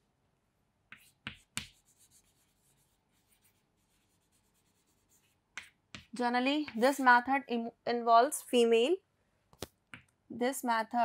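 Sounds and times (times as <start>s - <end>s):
chalk tapping on chalkboard: 0.9s - 7.0s
chalk scratching on chalkboard: 0.9s - 7.2s.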